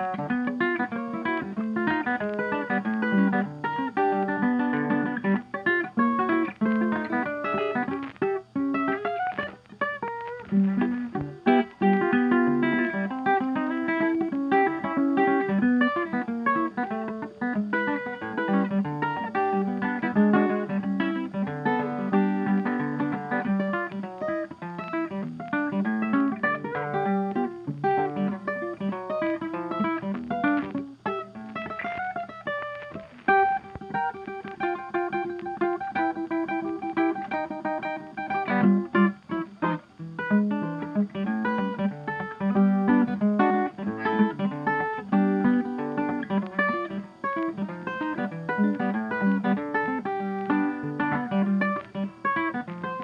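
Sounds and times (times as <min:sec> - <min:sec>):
guitar plucking notes: 0:00.0 - 0:53.0.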